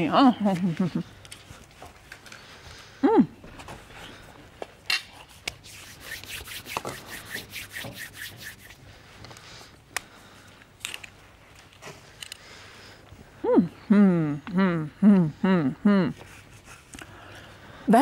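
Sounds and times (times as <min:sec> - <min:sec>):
quick rubbing or scraping strokes: 0:05.2 - 0:08.8.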